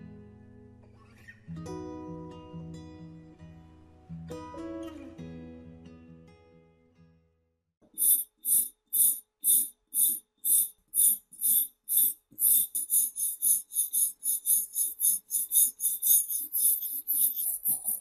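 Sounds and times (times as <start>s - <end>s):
wire brush scrubbing rusty metal: 8.0s - 18.0s.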